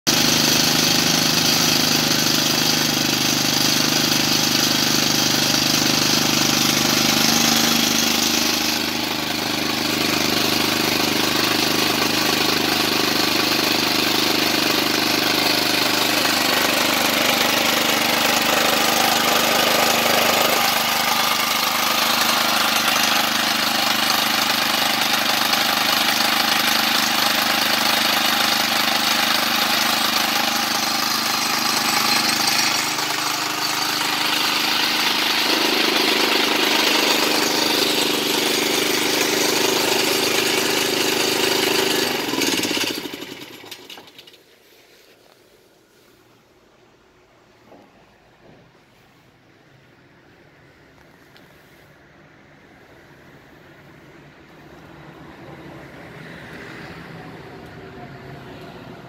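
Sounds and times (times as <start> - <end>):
small engine running: 0.1 - 44.5.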